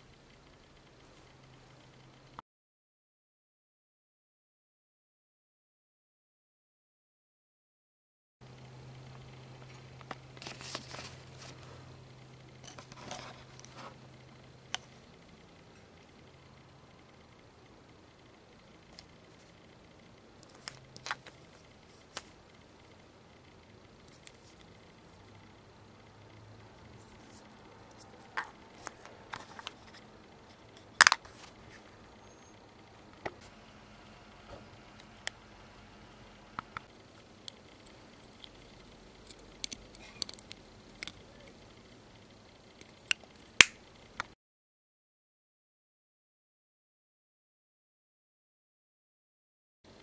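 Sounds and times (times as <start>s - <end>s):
steady low hum: 0.0s - 2.4s, 8.4s - 44.4s
paper bag and packaging rustling: 10.4s - 11.8s.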